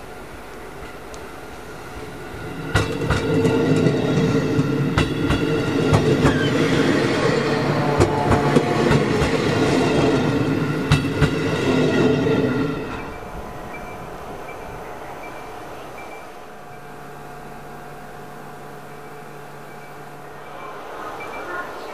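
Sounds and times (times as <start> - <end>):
electric train rumbling past: 0.0 - 21.9
wheels clacking over rail joints: 2.5 - 11.9.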